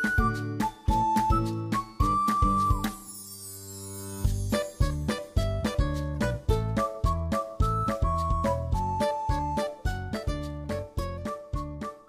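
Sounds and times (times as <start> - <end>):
keyboard melody: 0.0 - 12.0
bass beat: 4.3 - 12.0.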